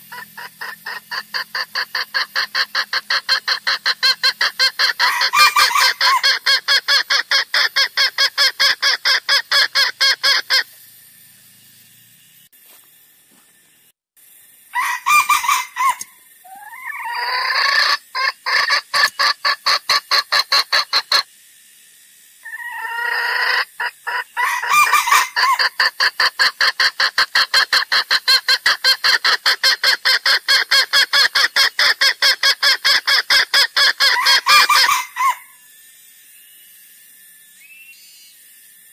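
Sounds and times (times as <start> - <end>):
junglefowl clucking calls: 0.0 - 10.7, 14.8 - 21.3, 22.4 - 35.6
gliding pitched bird calls: 0.0 - 12.3, 14.8 - 21.3, 22.4 - 35.7, 36.4 - 38.6.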